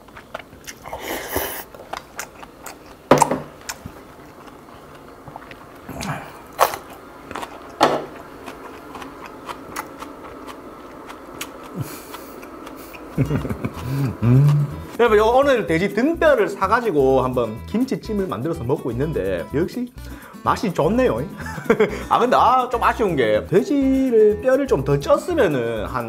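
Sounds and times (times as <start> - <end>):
person chewing: 0.0 - 15.0.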